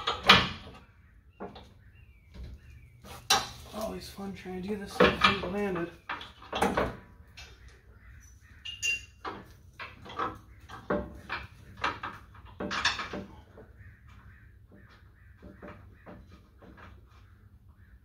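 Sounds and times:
metal knocks and clinks: 8.6s - 13.4s.

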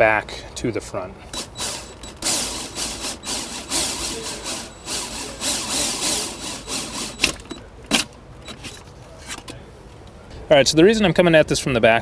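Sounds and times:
hole saw grinding plastic: 1.3s - 8.8s
sharp clicks: 1.3s - 8.8s.

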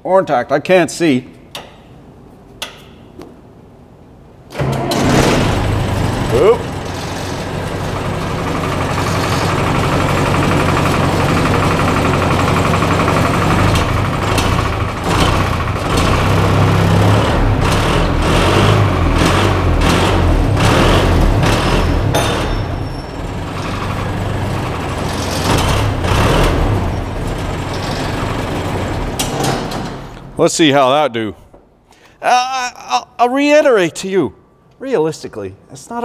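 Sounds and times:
machine engine running: 4.5s - 30.3s.

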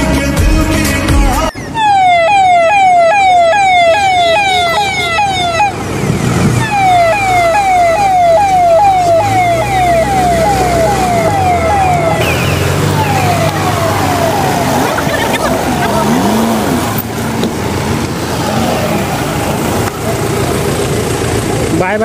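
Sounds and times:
electronic police siren: 1.5s - 5.8s, 6.6s - 16.0s
vehicle engine running: 2.7s - 22.0s.

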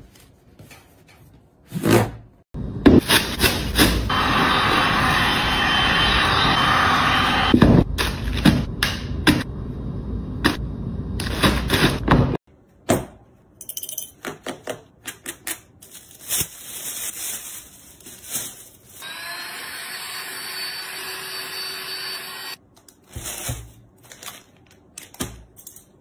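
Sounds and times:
whir with high whine: 4.1s - 7.8s, 19.0s - 22.6s
plastic rustling: 15.7s - 19.0s, 22.8s - 25.2s.

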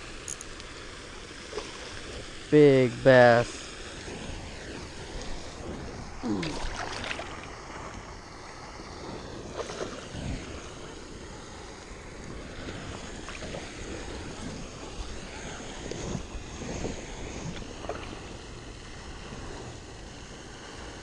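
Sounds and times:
wind buffeting microphone: 0.0s - 21.0s
water fountain splashing: 4.9s - 8.9s.

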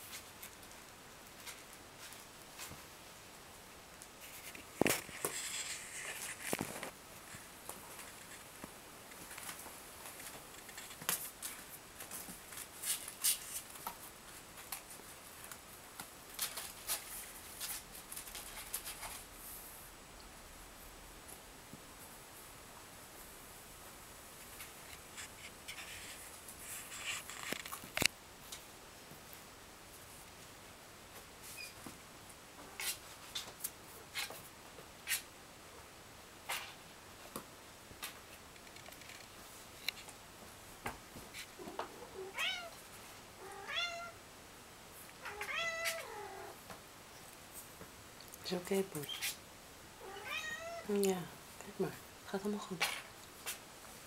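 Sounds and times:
kittens' claws scratching cardboard: 4.2s - 7.0s, 10.2s - 19.3s.

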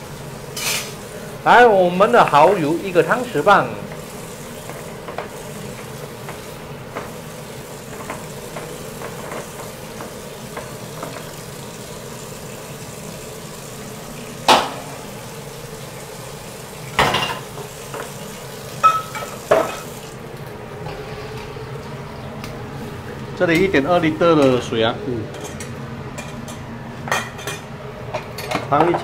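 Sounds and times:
wok hissing on gas stove: 0.0s - 28.8s
spoon clinking against dishes: 18.8s - 19.9s.

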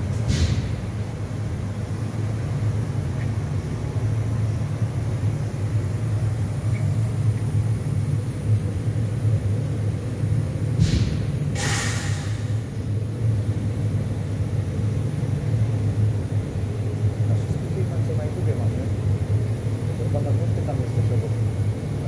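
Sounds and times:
laser cutting machine humming: 0.9s - 22.0s
short hisses: 10.8s - 12.6s.

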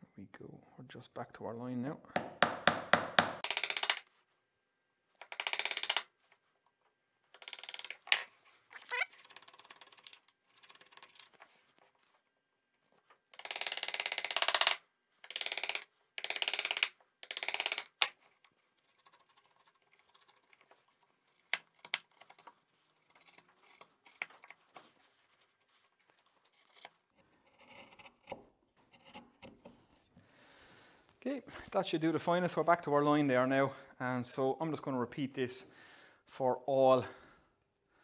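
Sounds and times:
chisel scraping wood: 26.3s - 30.2s.

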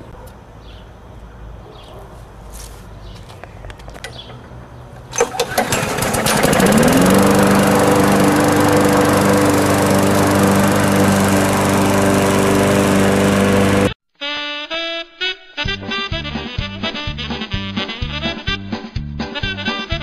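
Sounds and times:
lawn mower engine: 3.9s - 14.0s
pull-start cord: 4.0s - 13.9s.

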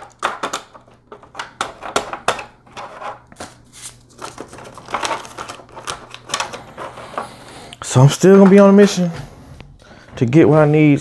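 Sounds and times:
plastic blister tray crackling: 0.0s - 7.4s.

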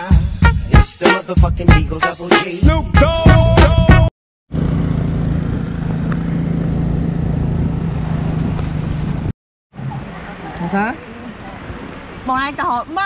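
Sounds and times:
music: 0.0s - 4.1s
tuk tuk engine drone: 4.0s - 13.0s
road and wind noise: 4.5s - 13.0s.

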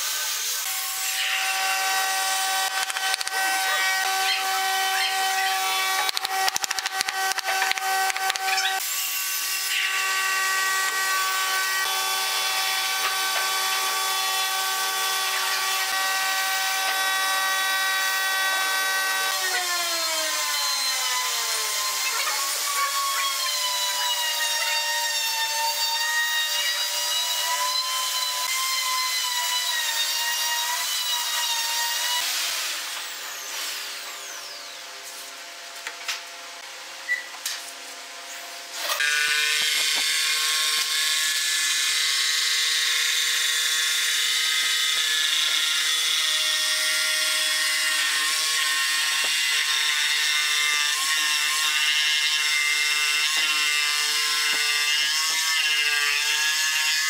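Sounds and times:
power tool motor whining: 1.2s - 9.0s, 9.6s - 25.6s.

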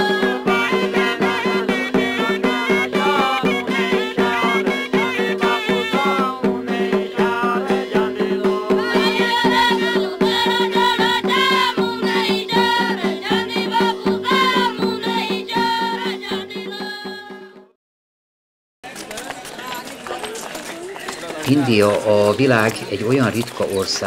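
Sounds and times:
quick drum strokes: 0.0s - 17.7s.

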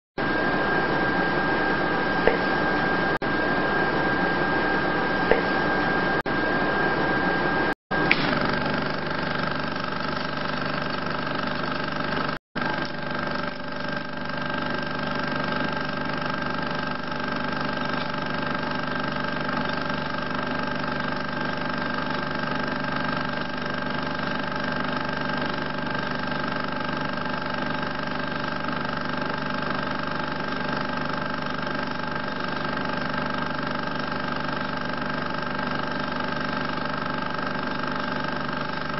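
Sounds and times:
constant humming tones: 0.2s - 24.5s
film projector whirring: 0.2s - 38.9s.

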